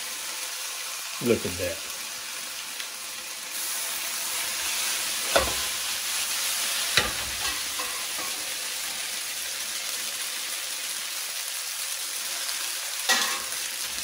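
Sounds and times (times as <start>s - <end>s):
spaghetti sizzling in a frying pan: 0.0s - 14.0s
metal tongs knocking on pan: 13.1s - 13.5s.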